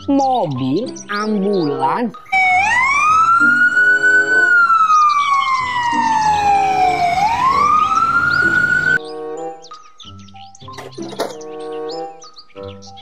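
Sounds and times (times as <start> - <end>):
ambulance siren wailing: 2.3 - 9.0.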